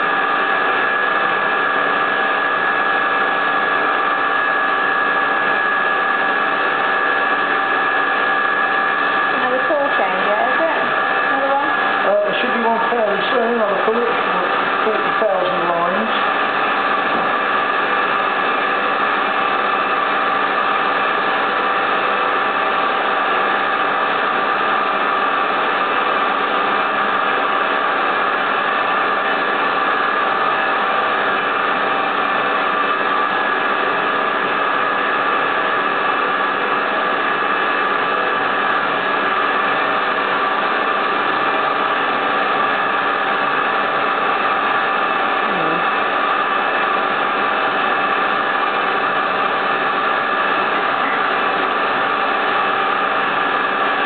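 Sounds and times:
spindle whine: 0.0s - 54.0s.

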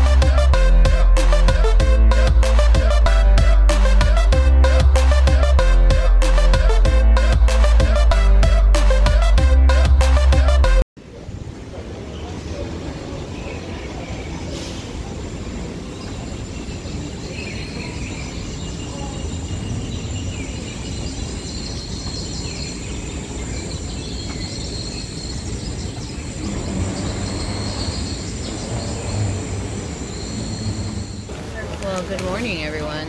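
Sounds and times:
faint bird chirps: 15.8s - 31.3s
low rumble of moving walkways: 25.7s - 31.8s.

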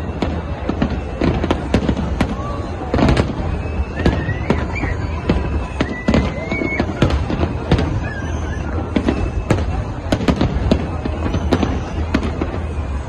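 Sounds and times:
fireworks bursting with sharp bangs: 0.0s - 13.0s
high wavering whistle: 2.4s - 9.8s.

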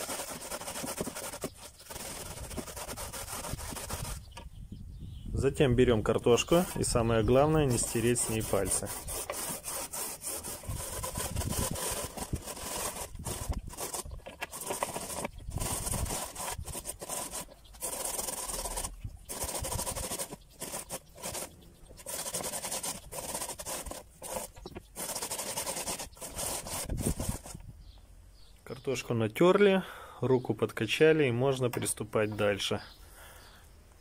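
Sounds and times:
potatoes rasping on metal grater: 0.0s - 4.3s, 6.5s - 27.6s.

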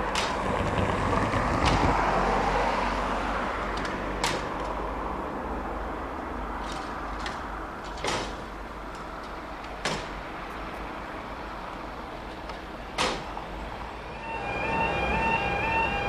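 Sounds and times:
warbling crossing alarm: 14.1s - 16.0s.

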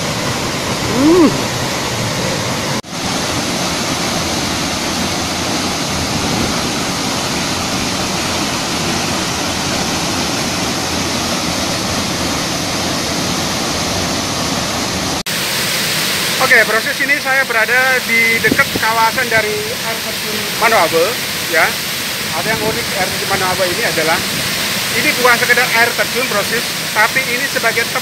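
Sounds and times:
waterfall rushing: 0.0s - 28.0s
person calling out: 0.8s - 1.5s.

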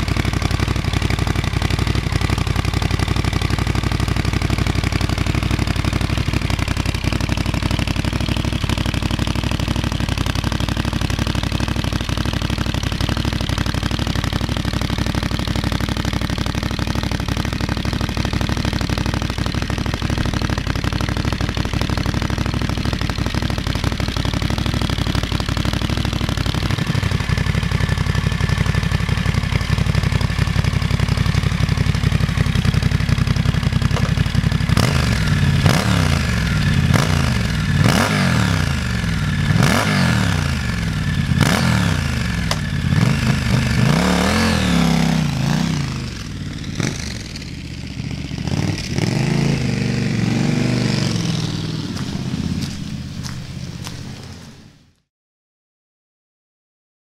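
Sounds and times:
motorcycle engine idling and revving: 0.0s - 55.0s.

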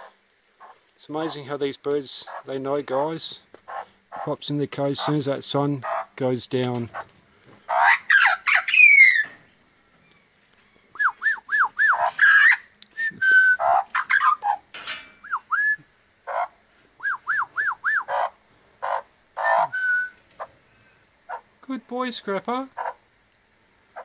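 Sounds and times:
magpie calling: 2.2s - 2.5s, 3.7s - 4.3s, 5.8s - 6.1s, 7.7s - 9.3s, 10.7s - 12.7s, 13.4s - 14.6s, 16.2s - 20.5s, 21.3s - 21.5s, 22.8s - 23.0s.

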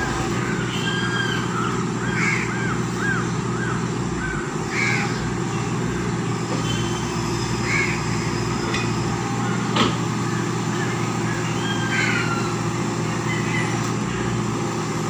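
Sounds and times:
excavator diesel engine running: 0.0s - 15.0s
crows cawing: 0.1s - 5.4s, 7.6s - 8.2s, 11.6s - 12.6s.

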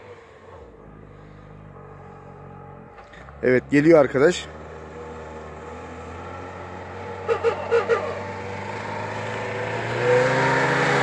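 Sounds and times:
car engine pulling under load: 0.0s - 11.0s.

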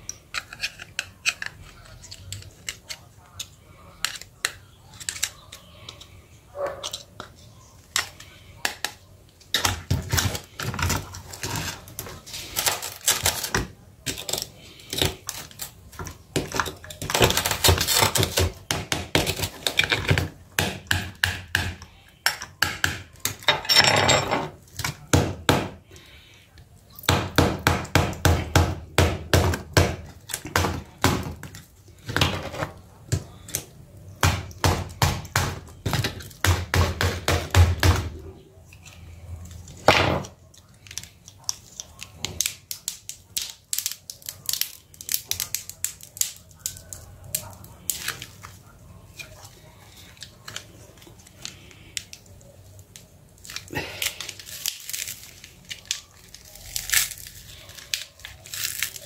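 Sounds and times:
tools clicking and snapping on plastic: 0.0s - 6.1s.

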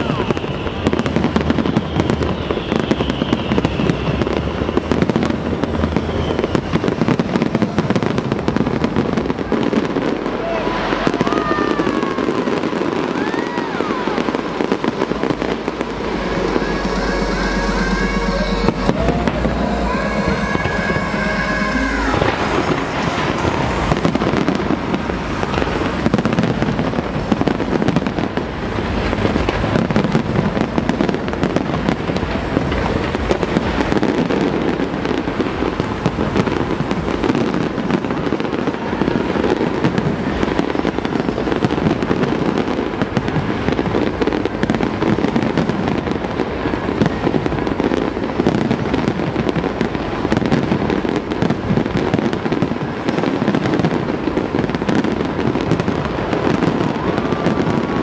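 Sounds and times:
fireworks bursting: 0.0s - 58.0s.

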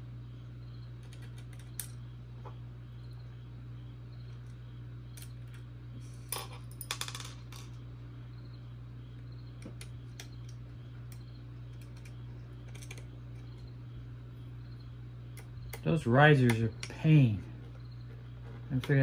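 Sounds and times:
steady low hum: 0.0s - 19.0s
small metal parts clinking: 6.2s - 7.8s, 10.2s - 13.6s.

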